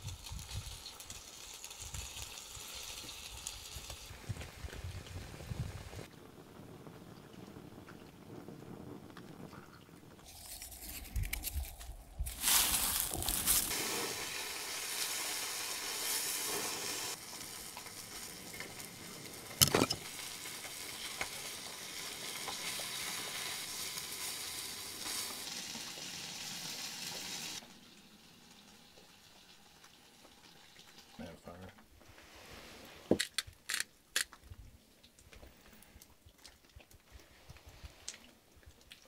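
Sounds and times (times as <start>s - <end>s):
food sizzling in pan: 0.0s - 6.0s, 12.2s - 31.1s.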